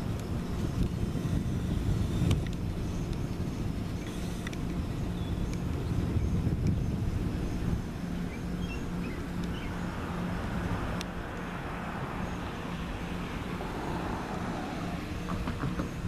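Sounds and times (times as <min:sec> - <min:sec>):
wind on microphone: 0:00.0 - 0:11.0
vehicle engine rumbling: 0:00.0 - 0:16.0
small birds chirping: 0:00.2 - 0:10.1.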